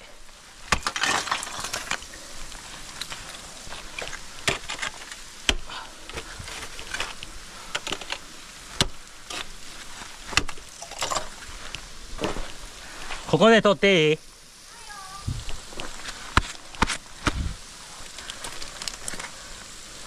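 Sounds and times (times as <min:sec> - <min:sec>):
ice axe striking ice: 0:00.7 - 0:02.2, 0:03.0 - 0:07.2, 0:08.8 - 0:09.5, 0:10.3 - 0:11.3
ice chips trickling down: 0:00.7 - 0:08.8, 0:10.6 - 0:11.7, 0:17.9 - 0:19.5
crunching and scraping of ice: 0:00.7 - 0:11.4.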